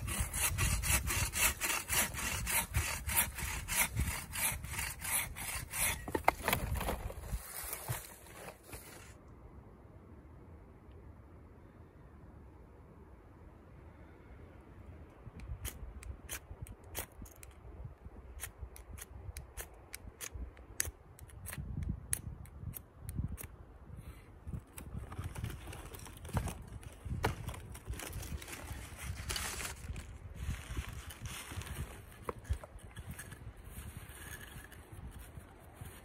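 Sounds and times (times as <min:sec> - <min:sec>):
striker scraping along rod: 0:00.0 - 0:09.1.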